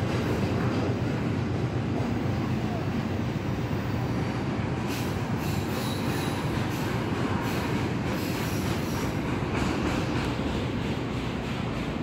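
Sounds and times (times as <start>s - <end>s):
train wheels rumbling on rails: 0.0s - 12.0s
faint high wheel squeal: 5.4s - 9.2s.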